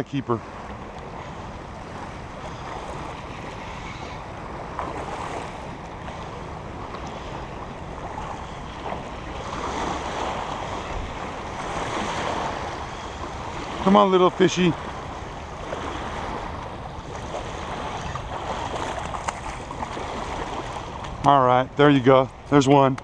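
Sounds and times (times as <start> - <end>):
wind buffeting microphone: 14.6 - 23.0.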